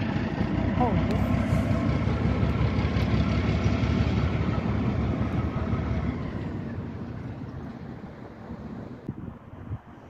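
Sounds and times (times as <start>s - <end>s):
diesel locomotive engine rumbling: 0.0s - 10.0s.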